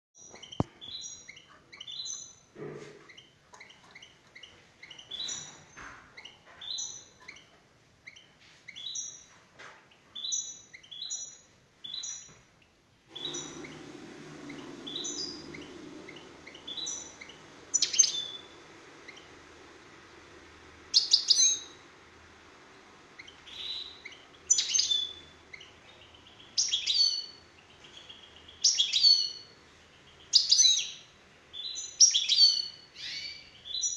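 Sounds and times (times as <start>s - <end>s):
songbird chirping: 0.2s - 33.9s
steady low hum: 13.1s - 28.6s.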